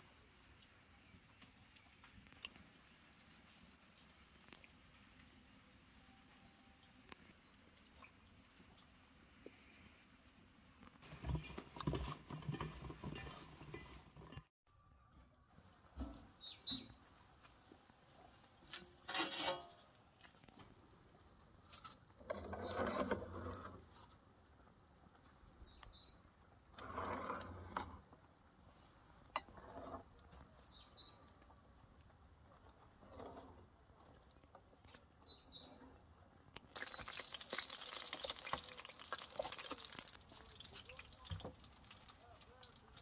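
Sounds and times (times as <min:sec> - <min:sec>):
faint bird chirps: 0:14.7 - 0:17.0
metal scraping and clattering: 0:18.7 - 0:19.9.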